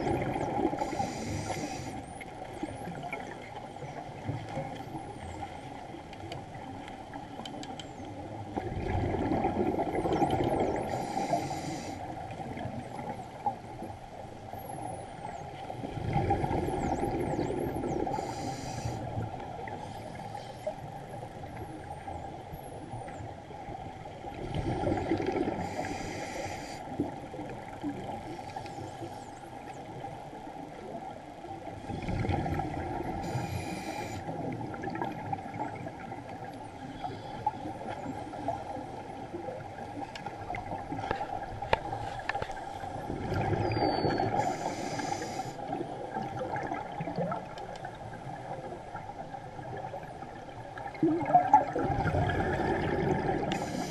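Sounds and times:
exhaled bubbles rumbling: 0.0 - 1.2, 8.3 - 11.2, 15.2 - 18.5, 23.1 - 26.0, 30.8 - 33.7, 34.3 - 45.0, 45.7 - 53.9
underwater background noise: 0.0 - 53.9
regulator hiss: 18.2 - 19.0, 33.2 - 34.3, 44.4 - 45.6, 53.5 - 53.9.

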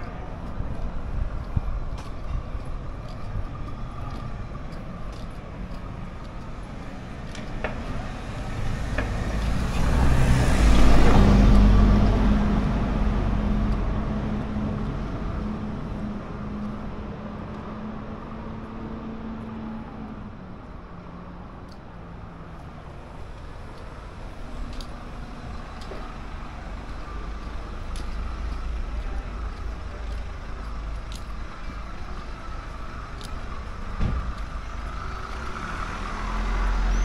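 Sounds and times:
vehicle passing by: 7.8 - 20.2, 32.0 - 37.0.

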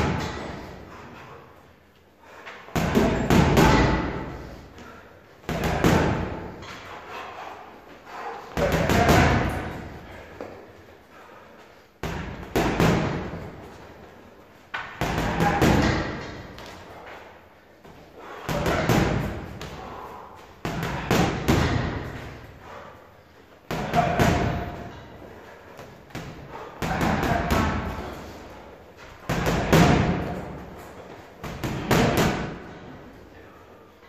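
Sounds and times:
boxing gloves punching heavy bag: 2.8 - 4.4, 5.5 - 6.6, 8.2 - 10.0, 12.0 - 13.7, 14.9 - 16.8, 18.2 - 22.5, 23.7 - 25.0, 25.8 - 32.9.

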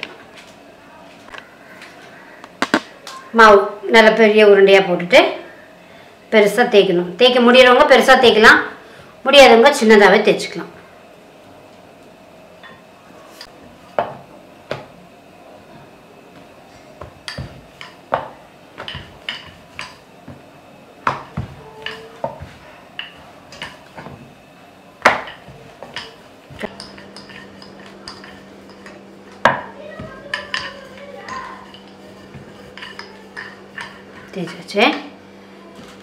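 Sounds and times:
low steady hum: 0.0 - 36.0
rolling pin knocking on board: 17.0 - 20.4, 21.0 - 24.2, 25.0 - 26.9, 29.4 - 30.7.

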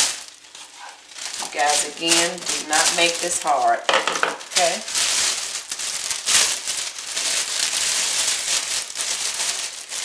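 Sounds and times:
plastic bag crinkling: 0.0 - 10.0.

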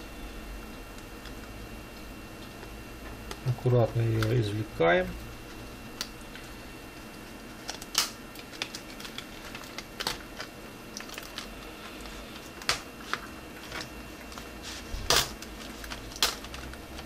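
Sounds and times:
plastic sheets clicking and crackling: 3.3 - 4.4, 7.6 - 14.5, 15.1 - 17.0.

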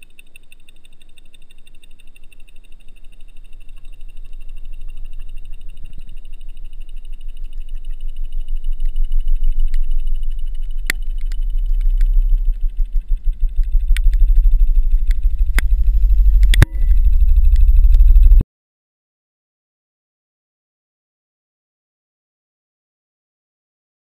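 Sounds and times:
muffled underwater rumble: 0.0 - 18.4.

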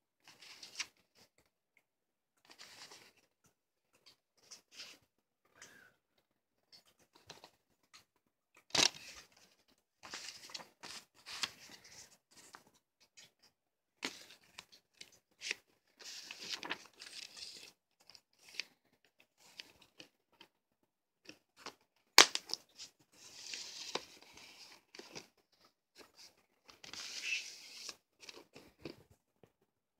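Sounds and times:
paper rustling: 8.7 - 12.7, 14.0 - 18.7, 21.6 - 25.3, 26.0 - 29.1.

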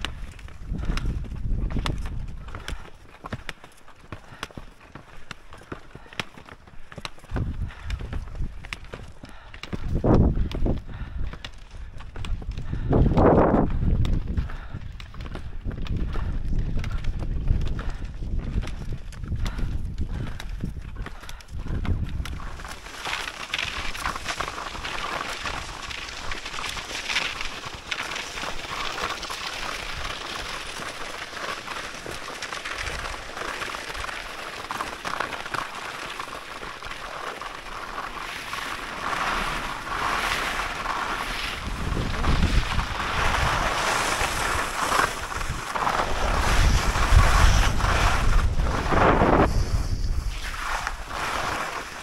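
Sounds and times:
wind buffeting microphone: 0.0 - 2.8, 7.3 - 22.7, 41.5 - 51.3
skis hissing and scraping on snow: 22.3 - 52.0.

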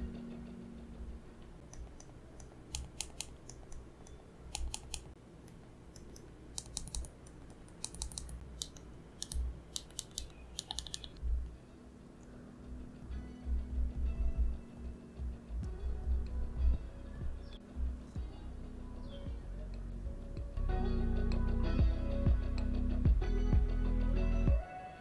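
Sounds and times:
phones clicking and tapping: 1.7 - 5.2, 6.0 - 11.2.

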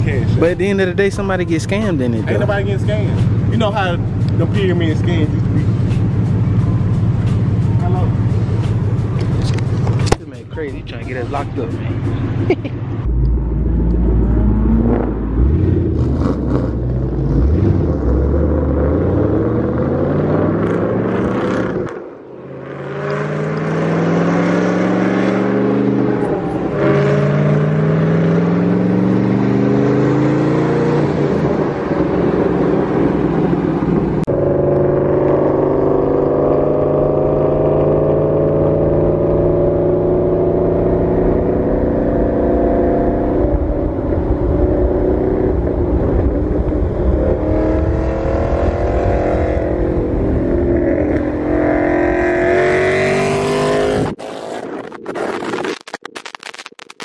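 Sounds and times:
car engine revving through gears: 13.0 - 56.5.

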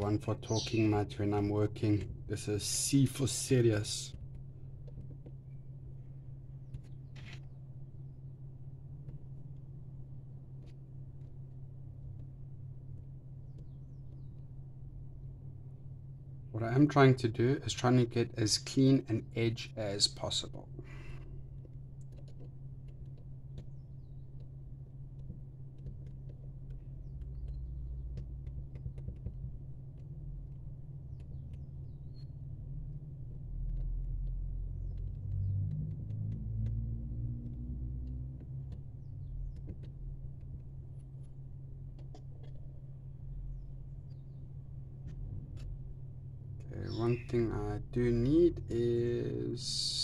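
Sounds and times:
low rumble: 19.3 - 50.0.

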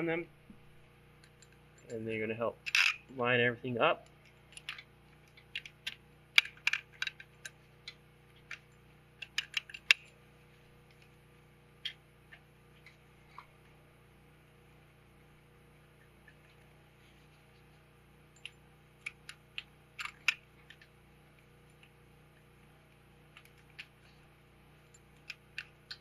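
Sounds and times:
metal parts clicking and tapping: 2.6 - 3.1, 4.2 - 10.1, 18.4 - 20.9.

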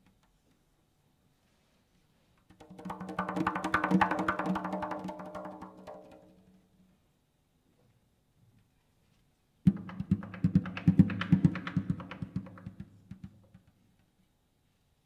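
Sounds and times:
hand drum strokes: 2.5 - 6.4.

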